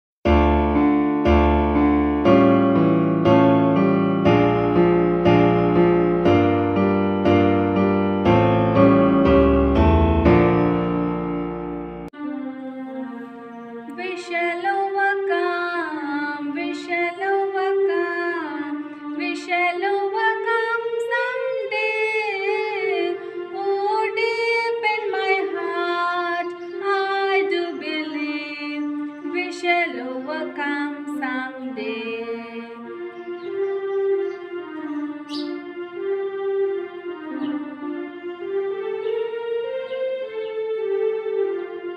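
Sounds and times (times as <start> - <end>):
woman singing a prayer song: 13.9 - 32.8.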